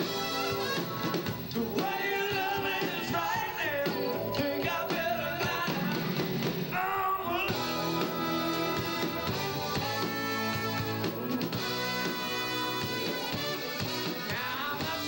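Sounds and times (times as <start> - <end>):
person singing: 0.0 - 9.1, 14.2 - 15.0
live rock band playing: 0.0 - 15.0.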